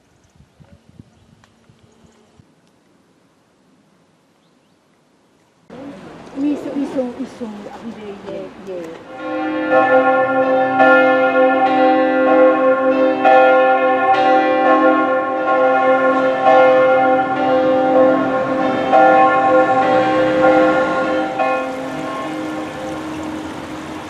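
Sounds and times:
church bells ringing: 9.0 - 24.0.

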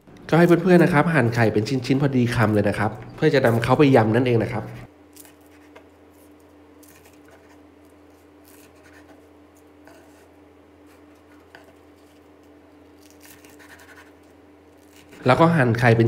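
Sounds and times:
steady low hum: 0.0 - 16.0
knife cutting crispy food: 5.1 - 9.2, 12.9 - 15.2.

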